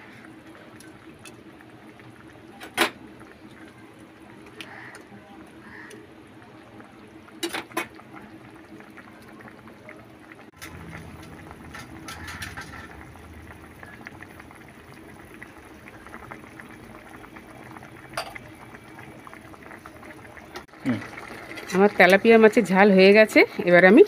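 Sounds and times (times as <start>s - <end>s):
curry bubbling in a pan: 0.0s - 24.0s.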